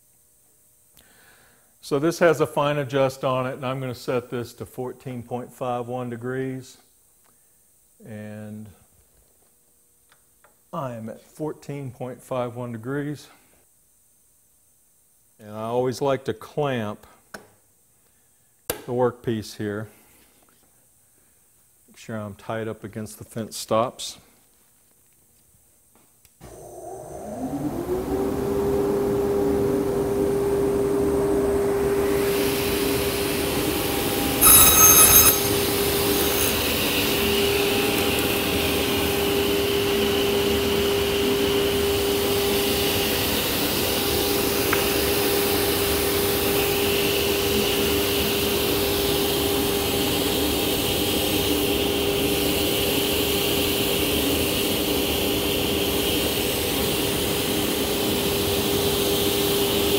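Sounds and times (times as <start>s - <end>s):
high-pitched tone: 34.4s - 36.6s
table saw running: 34.4s - 36.6s.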